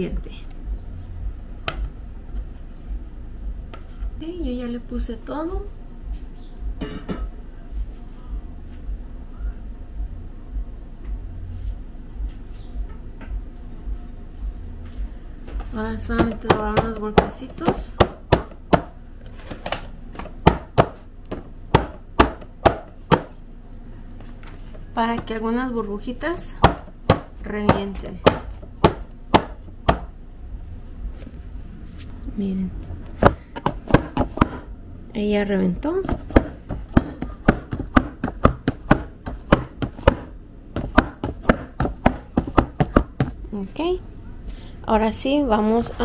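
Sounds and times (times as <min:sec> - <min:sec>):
cake pan knocking: 0:16.1 - 0:18.9, 0:36.0 - 0:43.4.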